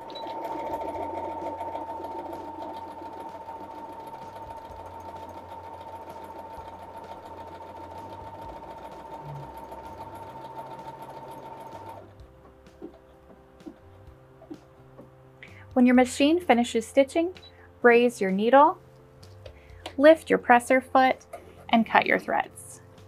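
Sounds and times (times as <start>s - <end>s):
sewing machine stitching: 0.0s - 12.1s.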